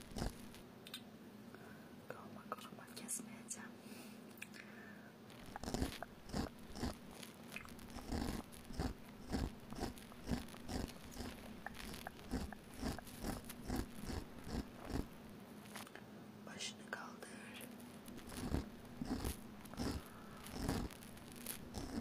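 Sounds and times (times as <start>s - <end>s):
razor scraping strokes: 0.0s - 0.6s, 5.4s - 15.9s, 18.0s - 22.0s.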